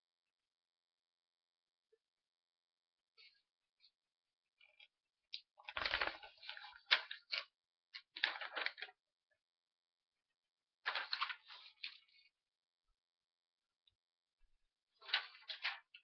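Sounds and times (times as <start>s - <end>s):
paper rustling and flapping: 4.6s - 9.0s, 10.8s - 12.4s, 14.9s - 16.0s.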